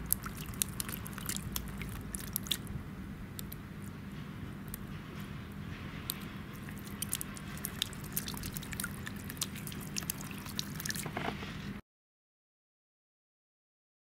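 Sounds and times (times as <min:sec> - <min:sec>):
droplets ticking: 0:00.0 - 0:02.7, 0:06.1 - 0:11.0
steady low hum: 0:00.0 - 0:11.8.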